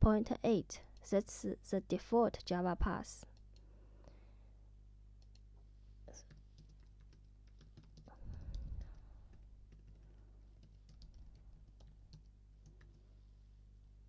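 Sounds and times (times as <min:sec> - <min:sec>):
keyboard typing clicks: 0:05.2 - 0:05.4, 0:06.2 - 0:13.0.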